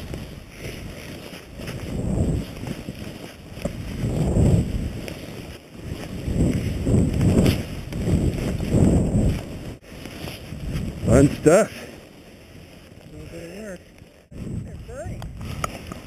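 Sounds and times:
skis sliding through snow: 0.0s - 16.0s
wind rushing over microphone: 0.0s - 16.0s.

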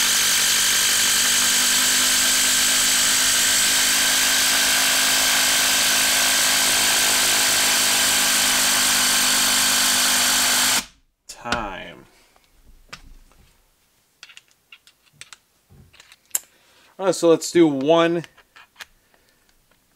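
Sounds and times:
impact wrench driving screw into wood: 0.0s - 11.7s.

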